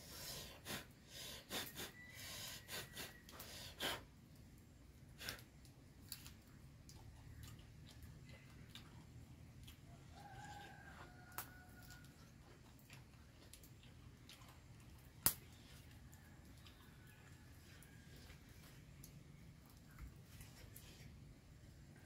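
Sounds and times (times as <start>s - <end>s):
wood fire crackling: 2.7s - 7.0s, 7.6s - 21.8s
fire snapping: 3.2s - 6.5s, 11.3s - 12.2s, 13.0s - 16.7s.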